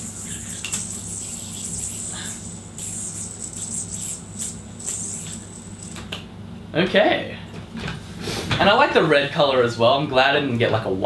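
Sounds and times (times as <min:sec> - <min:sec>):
yo-yo whirring: 0:00.0 - 0:06.2.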